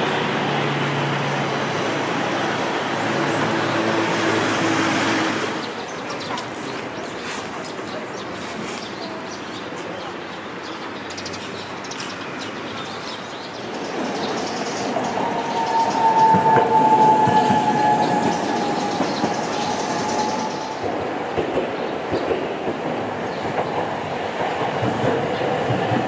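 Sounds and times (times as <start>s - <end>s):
streetcar running on tracks: 0.0s - 26.0s
high squeal: 15.1s - 20.8s.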